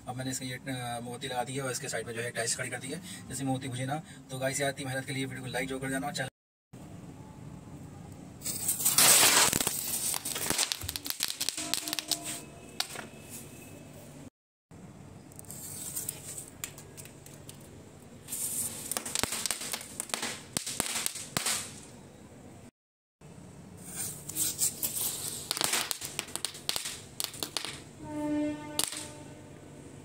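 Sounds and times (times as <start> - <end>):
firecrackers popping and crackling: 8.4 - 13.1, 15.5 - 21.9, 23.8 - 28.0, 28.8 - 29.3.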